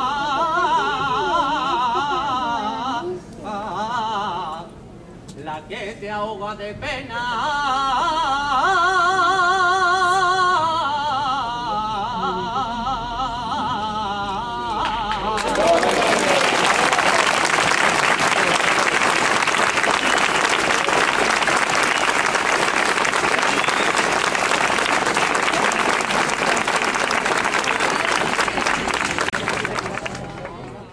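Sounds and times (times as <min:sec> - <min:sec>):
man singing: 0:05.4 - 0:15.6.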